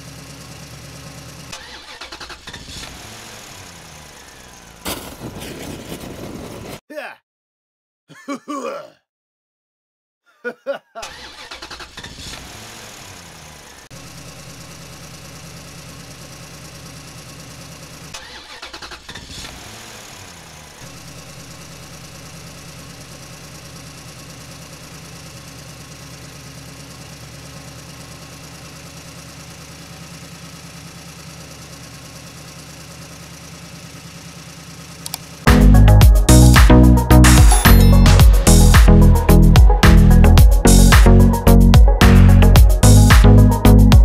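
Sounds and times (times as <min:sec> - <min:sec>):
tractor diesel engine idling: 0:00.0 - 0:02.3, 0:14.0 - 0:18.2, 0:20.9 - 0:44.0.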